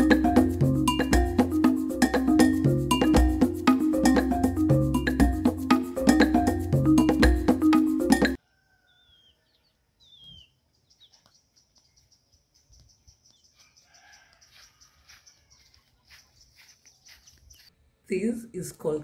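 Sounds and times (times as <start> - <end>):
background music: 0.0 - 8.4
small birds chirping: 8.8 - 17.8.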